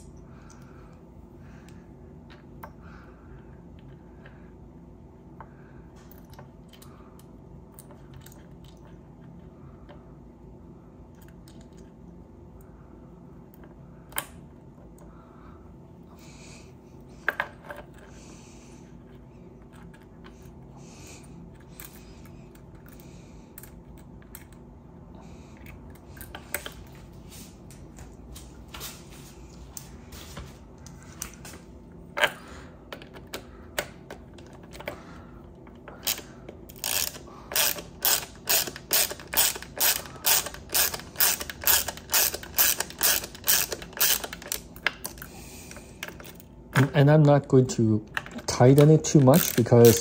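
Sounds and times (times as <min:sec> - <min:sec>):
ratchet driver clicking: 0:36.0 - 0:44.6.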